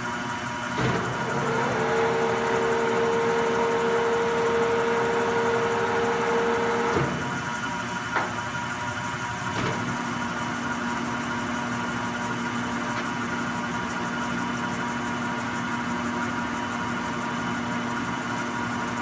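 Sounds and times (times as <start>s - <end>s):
grinder mechanical hum: 0.0s - 19.0s.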